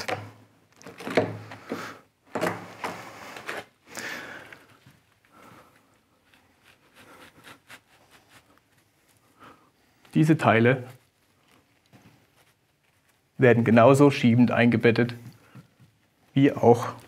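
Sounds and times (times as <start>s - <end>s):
clothing rustle on microphone: 4.6s - 17.0s.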